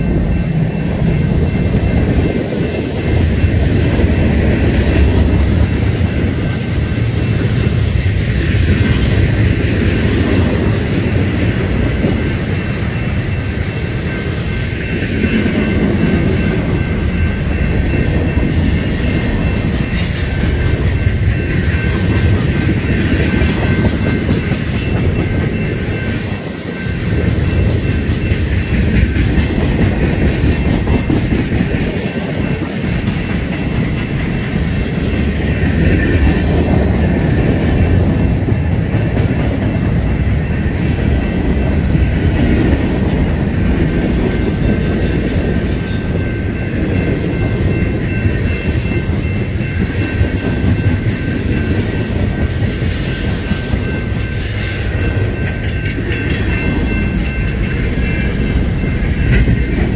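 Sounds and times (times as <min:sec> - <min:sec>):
train wheels rumbling and clattering: 0:00.0 - 0:59.9.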